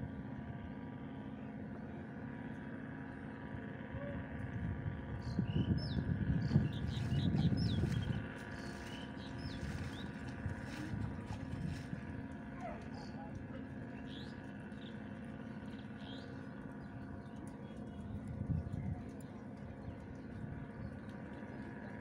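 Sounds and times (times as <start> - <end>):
low mechanical hum: 0.0 - 22.0
low rumble: 3.1 - 22.0
small birds chirping: 5.2 - 22.0.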